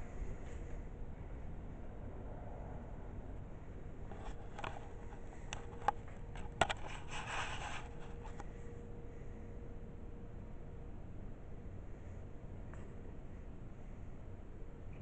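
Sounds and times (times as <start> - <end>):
steady low hum: 0.0 - 15.0
rustling scrape: 4.0 - 8.6.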